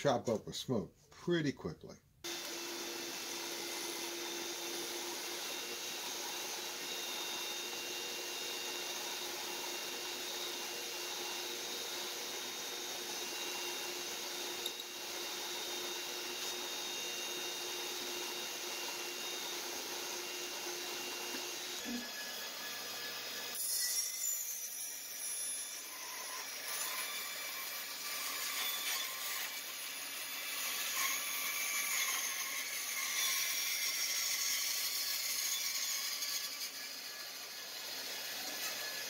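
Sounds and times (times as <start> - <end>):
shop vacuum running: 2.2 - 23.5
drill press boring wood: 2.3 - 24.1, 25.6 - 39.0.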